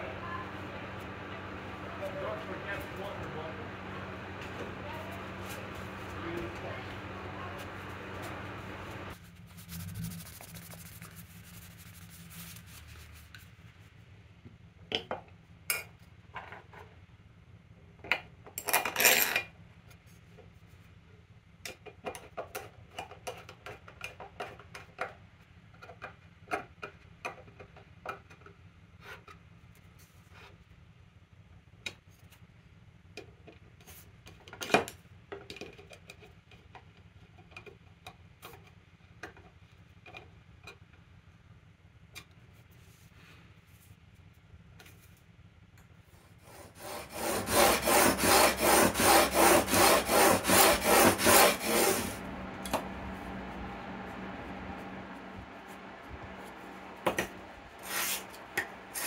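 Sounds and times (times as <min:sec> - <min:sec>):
cloth rubbing: 0:07.4 - 0:13.3, 0:57.8 - 0:58.3.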